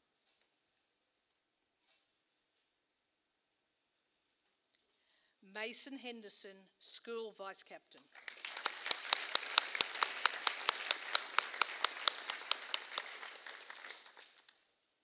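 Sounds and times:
nearby hands clapping sharply: 8.0s - 14.6s
audience applauding: 8.1s - 14.6s.

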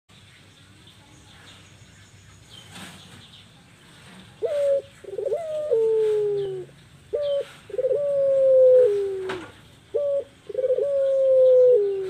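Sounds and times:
dove cooing: 4.4s - 12.0s.

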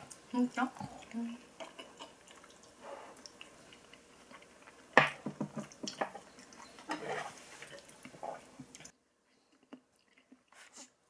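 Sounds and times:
dish and utensil noises: 5.0s - 7.9s.

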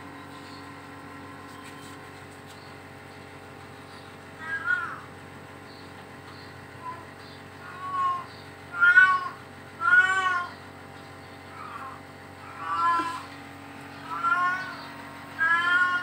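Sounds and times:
cat meowing: 4.4s - 5.1s, 7.6s - 10.6s, 11.6s - 13.3s, 14.0s - 16.0s.

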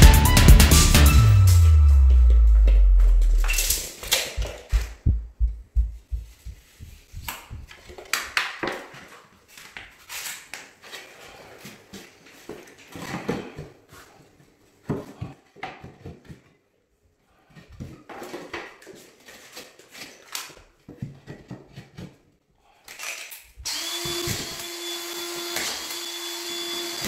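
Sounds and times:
low thumps: 1.2s - 7.7s.

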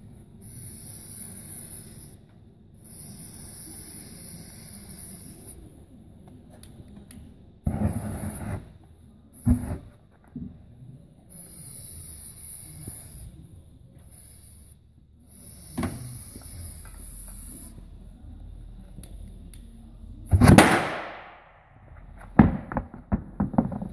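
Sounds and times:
aerosol spray hissing: 0.4s - 2.2s, 2.8s - 5.6s, 11.3s - 13.4s, 14.0s - 17.8s.

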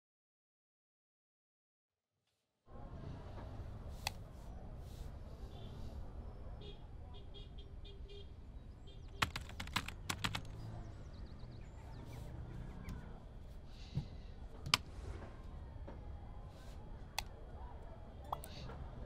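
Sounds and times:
keyboard typing: 9.1s - 10.6s.

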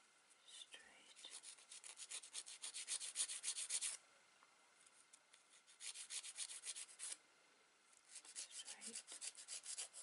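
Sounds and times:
nail file filing a nail: 1.2s - 4.0s, 5.5s - 7.2s, 8.1s - 10.0s.

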